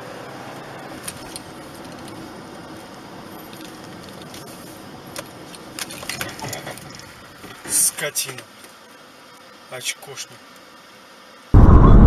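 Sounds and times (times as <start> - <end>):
car road and engine noise: 0.0 - 9.7.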